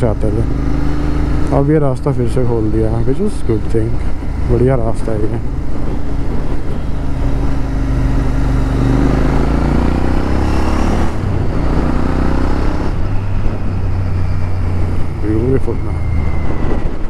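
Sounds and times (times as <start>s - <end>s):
motorcycle engine accelerating: 0.0s - 17.0s
wind rush over microphone: 3.8s - 17.0s.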